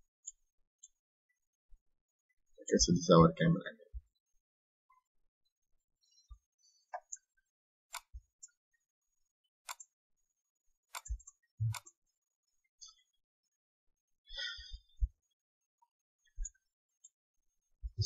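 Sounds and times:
computer mouse clicks: 7.9s - 8.6s, 9.6s - 10.0s, 10.9s - 12.0s.

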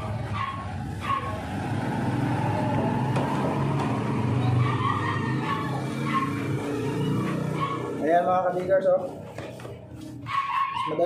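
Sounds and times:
dog yipping: 0.0s - 1.5s, 4.4s - 8.0s, 10.2s - 11.0s.

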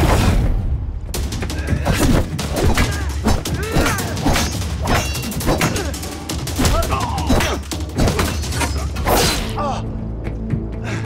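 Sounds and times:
fighters grunting and shouting: 1.4s - 9.9s.

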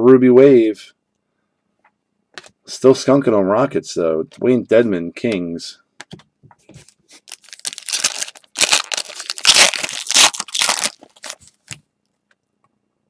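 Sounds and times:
card pack wrapper tearing: 7.1s - 11.8s.

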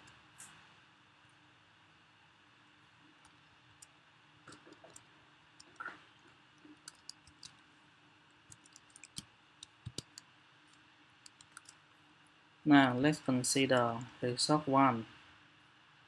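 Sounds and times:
low room hiss: 0.0s - 16.0s
keyboard typing clicks: 6.8s - 7.6s, 8.5s - 10.3s, 11.2s - 11.8s.

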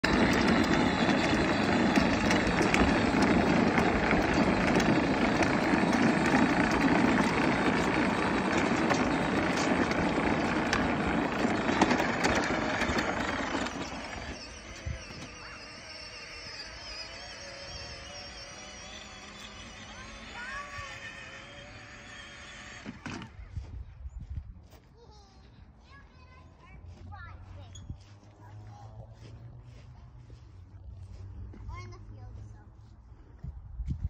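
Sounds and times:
plastic wheels rumbling on concrete: 0.0s - 23.5s.

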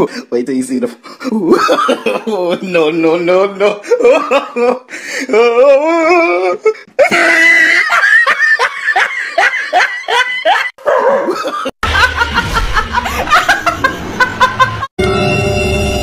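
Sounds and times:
person laughing hard: 3.7s - 14.9s
low hum: 11.8s - 16.0s.

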